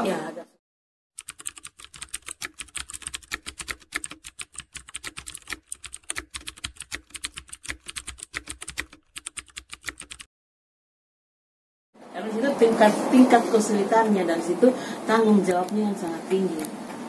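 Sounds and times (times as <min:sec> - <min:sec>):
keyboard typing: 0:01.2 - 0:10.3.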